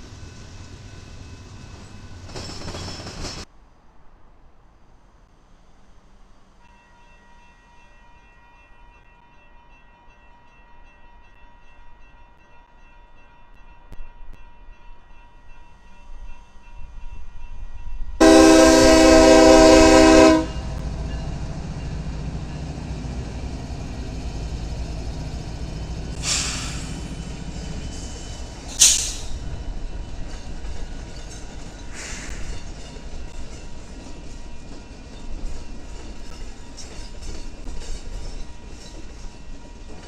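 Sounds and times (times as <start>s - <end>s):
train rumbling past: 0.0s - 8.4s, 13.6s - 40.0s
locomotive horn blast: 18.2s - 21.1s
short hisses: 26.2s - 27.2s, 28.8s - 29.4s, 31.9s - 32.5s.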